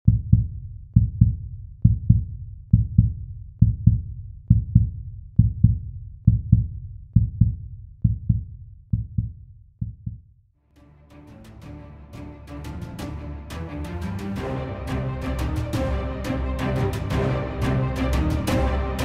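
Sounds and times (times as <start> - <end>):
heartbeat thumps: 0.0 - 10.3.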